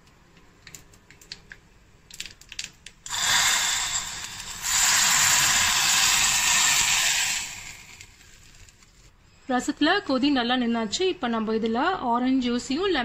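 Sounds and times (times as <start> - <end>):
spices sizzling in hot ghee: 3.1 - 8.6.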